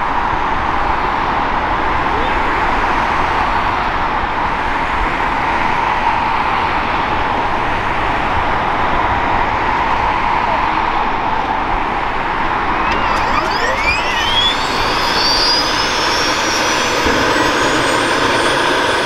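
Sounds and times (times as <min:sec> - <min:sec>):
helicopter engine whine spooling up: 0:11.4 - 0:19.0.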